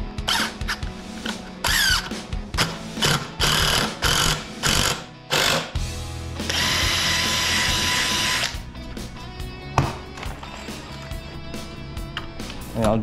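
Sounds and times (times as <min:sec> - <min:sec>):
power drill driving screw into wood: 0:00.3 - 0:00.8, 0:01.6 - 0:05.8, 0:06.4 - 0:08.6.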